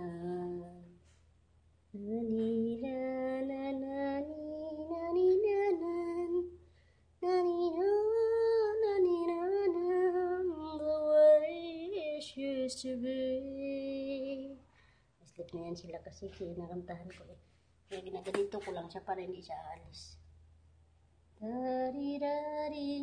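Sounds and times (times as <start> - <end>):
person singing a lullaby: 0.0 - 1.0, 2.0 - 6.6, 7.2 - 14.6.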